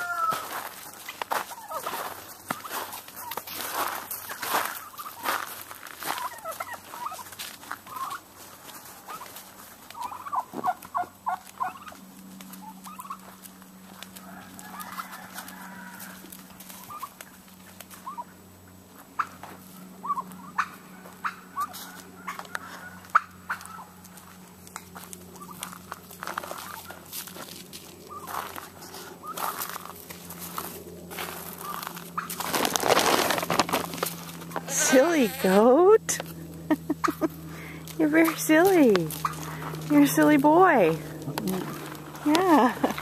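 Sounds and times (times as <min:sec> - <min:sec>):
turkey calling: 0:00.0 - 0:27.2, 0:27.8 - 0:43.0
clicks and rustles: 0:31.7 - 0:34.7.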